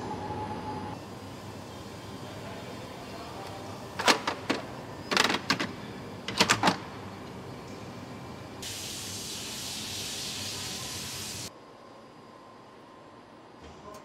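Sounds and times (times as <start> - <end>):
factory background noise: 0.0 - 14.0
steady hiss: 8.6 - 11.5.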